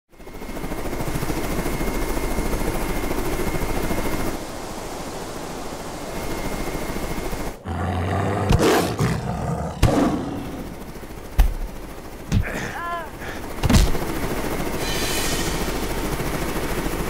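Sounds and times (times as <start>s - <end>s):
low hum: 4.3s - 17.0s
loud rapid rhythmic flutter: 9.8s - 17.0s
sharp hits: 14.8s - 16.2s.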